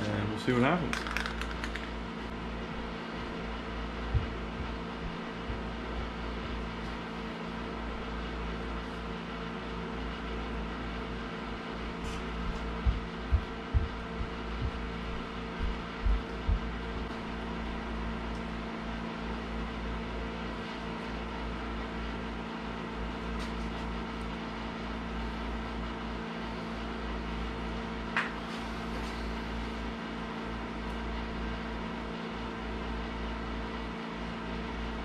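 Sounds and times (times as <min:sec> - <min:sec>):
machine hum: 0:00.0 - 0:23.2.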